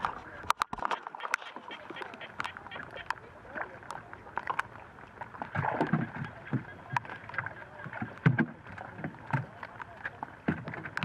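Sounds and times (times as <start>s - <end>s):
water splashing and dripping: 0.0s - 11.0s.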